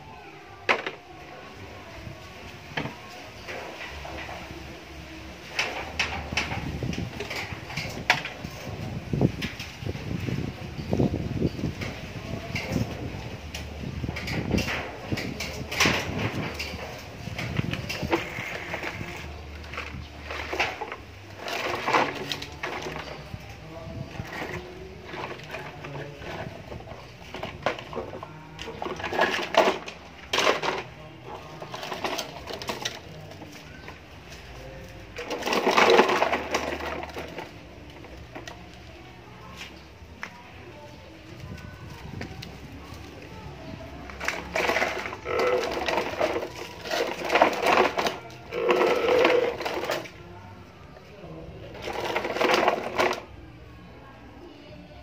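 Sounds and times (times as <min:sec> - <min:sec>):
plastic toys clattering: 0:00.5 - 0:53.9
toy truck scraping on stone: 0:14.2 - 0:38.6, 0:44.0 - 0:50.2, 0:51.6 - 0:53.4.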